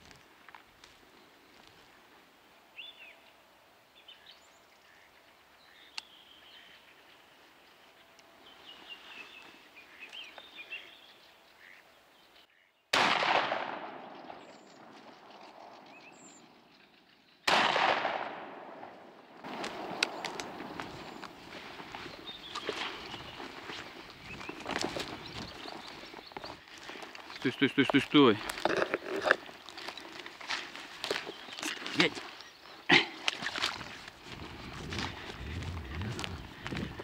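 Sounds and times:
faint birdsong: 0:00.1 - 0:13.0, 0:13.8 - 0:17.7, 0:18.4 - 0:37.0
shotgun shots: 0:12.9 - 0:15.0, 0:17.5 - 0:21.1.

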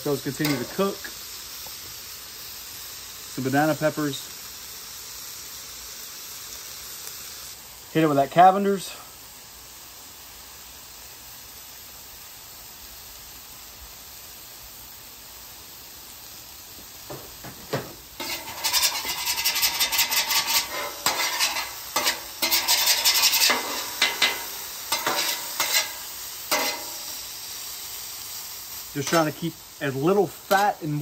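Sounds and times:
meat sizzling: 0:00.0 - 0:31.0
metal spatulas scraping griddle: 0:00.4 - 0:01.0, 0:17.1 - 0:27.2, 0:29.0 - 0:29.4, 0:30.5 - 0:30.8.

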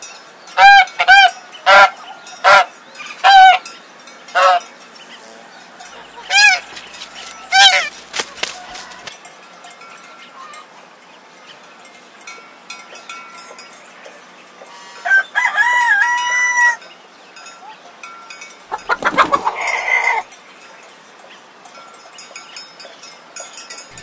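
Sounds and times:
roosters crowing: 0:00.6 - 0:03.7, 0:04.3 - 0:04.6, 0:05.2 - 0:09.1, 0:14.7 - 0:16.8, 0:18.7 - 0:20.3.

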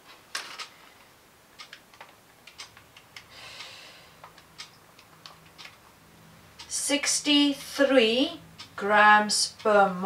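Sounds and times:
soft breath: 0:03.3 - 0:04.2.

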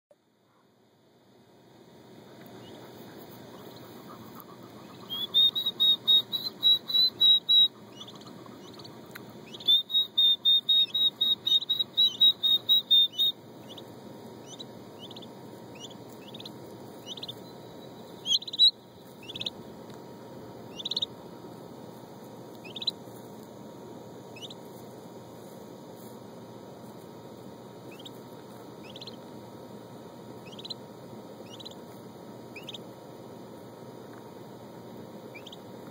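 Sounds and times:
turkey poults peeping: 0:02.3 - 0:20.0, 0:20.6 - 0:21.3, 0:22.5 - 0:23.4, 0:24.2 - 0:24.9, 0:27.8 - 0:29.5, 0:30.3 - 0:33.0, 0:35.2 - 0:35.9.

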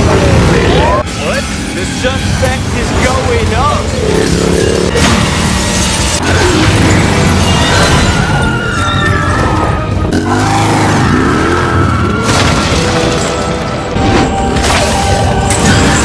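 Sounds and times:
action film music: 0:00.0 - 0:16.0
booming impacts: 0:10.0 - 0:16.0.

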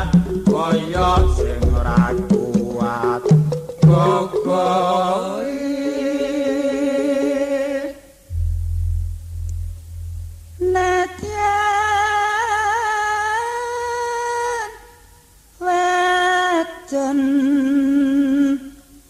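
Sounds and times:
woman singing with vibrato: 0:00.0 - 0:08.0, 0:10.6 - 0:15.0, 0:15.6 - 0:19.0
deep low tone: 0:08.3 - 0:12.7.

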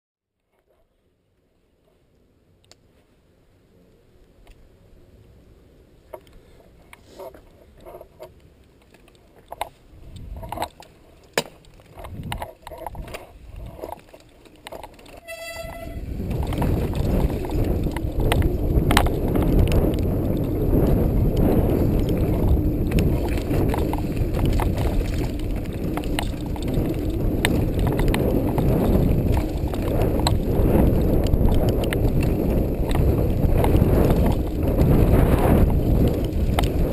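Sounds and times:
tyres rumbling on dirt trail: 0:03.2 - 0:36.9
clicks and knocks of handling: 0:06.1 - 0:15.2
short pitched toot: 0:15.2 - 0:16.0.

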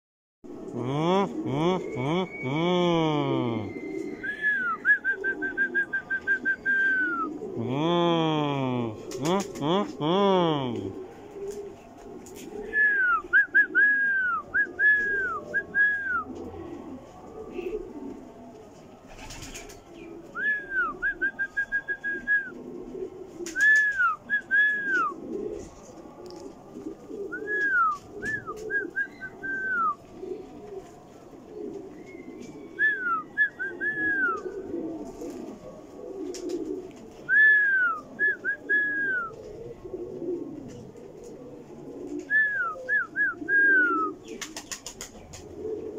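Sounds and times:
pigeons cooing: 0:00.5 - 0:45.9.

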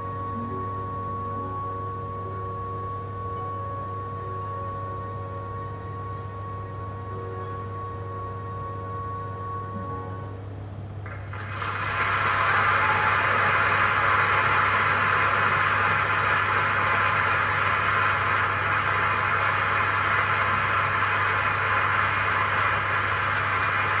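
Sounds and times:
low steady hum: 0:00.0 - 0:24.0
audience applauding: 0:11.0 - 0:24.0.

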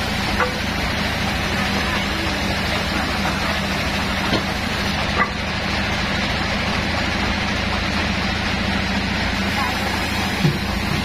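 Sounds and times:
saw mill machine drone: 0:00.0 - 0:11.0.

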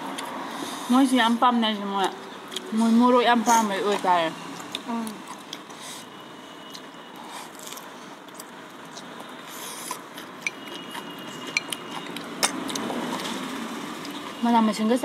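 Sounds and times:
slurping and chewing noodles: 0:06.7 - 0:14.2.

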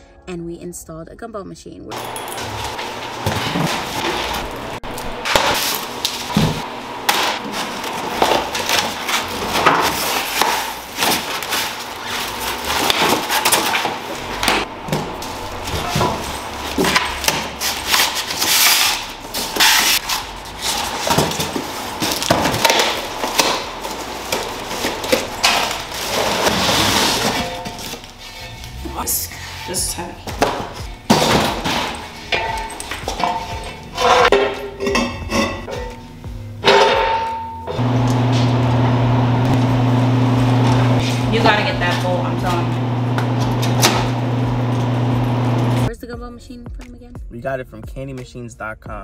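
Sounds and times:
plastic wrap and foam rustling: 0:07.2 - 0:14.4, 0:15.2 - 0:28.8
cardboard tearing and crumpling: 0:15.6 - 0:28.2.

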